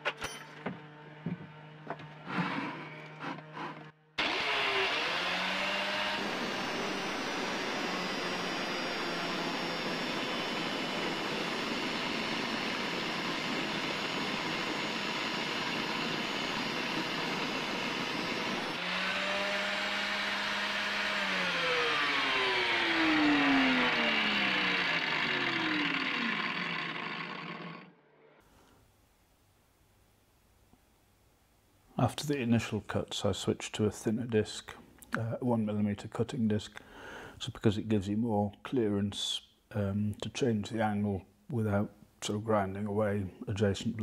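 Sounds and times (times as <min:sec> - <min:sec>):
angle grinder grinding metal: 0:00.3 - 0:28.0
grinder motor whine: 0:00.4 - 0:28.4.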